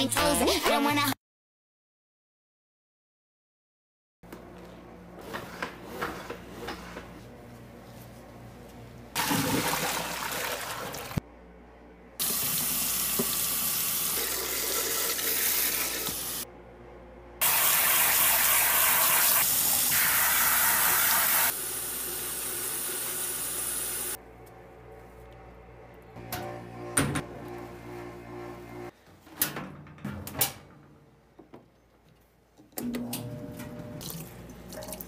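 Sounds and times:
water splashing into sink: 0:09.2 - 0:11.2, 0:34.0 - 0:35.0.

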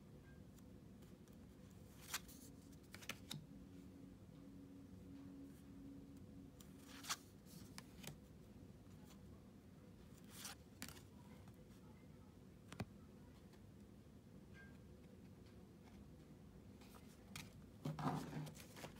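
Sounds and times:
low steady hum: 0:00.0 - 0:18.9
cards clicking and rustling: 0:02.0 - 0:03.4.

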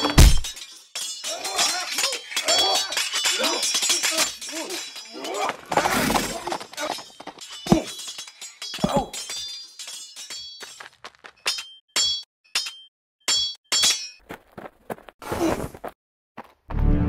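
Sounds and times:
metal blades clashing: 0:00.0 - 0:14.2.

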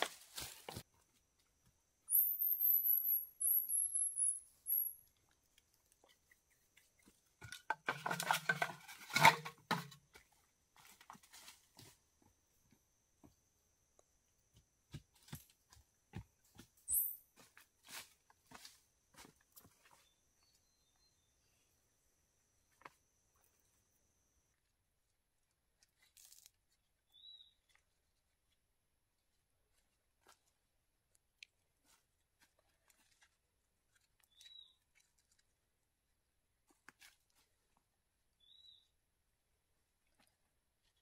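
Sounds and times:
footsteps rustling on forest floor: 0:00.0 - 0:01.2, 0:10.1 - 0:12.3, 0:15.0 - 0:20.2
rustling and knocking clatter: 0:07.4 - 0:10.1.

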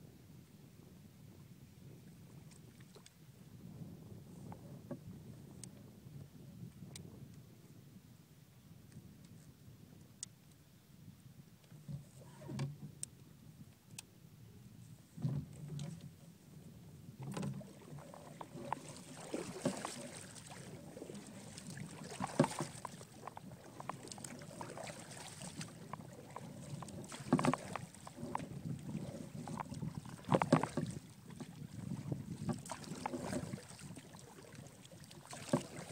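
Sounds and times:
paddle splashing in water: 0:15.1 - 0:35.9
water washing against hull: 0:15.1 - 0:35.9.

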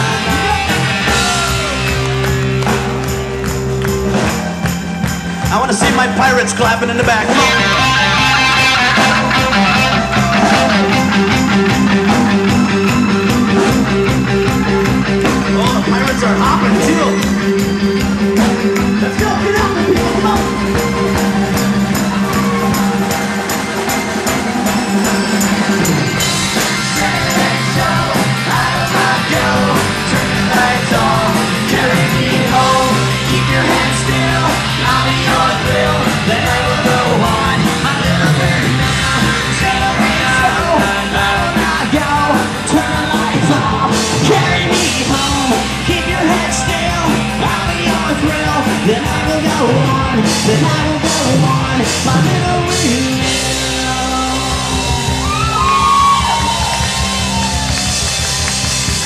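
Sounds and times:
drums: 0:00.0 - 0:59.0
electric guitar: 0:00.0 - 0:59.0
live rock band playing: 0:00.0 - 0:59.0
singer singing into microphone: 0:26.7 - 0:56.8.

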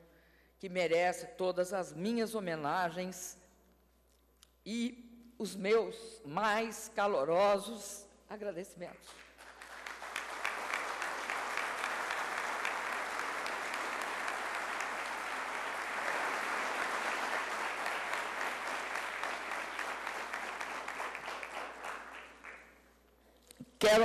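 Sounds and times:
audience applauding: 0:09.2 - 0:22.8.

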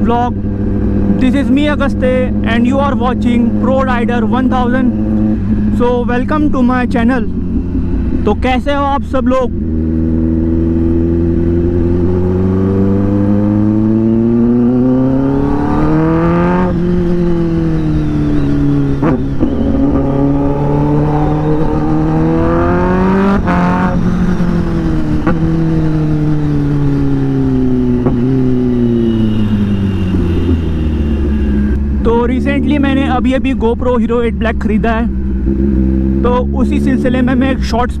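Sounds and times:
motorcycle engine revving: 0:00.0 - 0:38.0
exhaust cracks: 0:23.4 - 0:26.4.

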